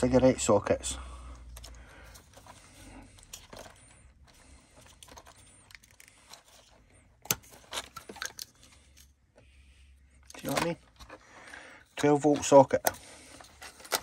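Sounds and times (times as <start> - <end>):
small plastic and metal parts rattling: 3.2 - 9.1, 10.2 - 11.2, 11.8 - 14.0.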